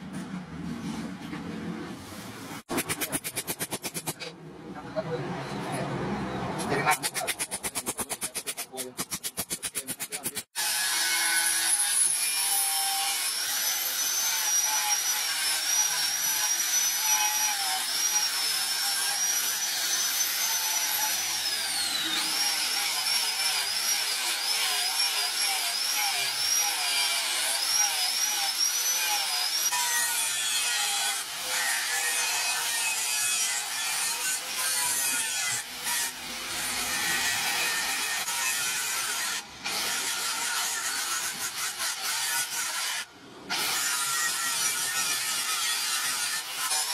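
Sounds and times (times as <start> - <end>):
rough metal grinding: 6.6 - 46.9.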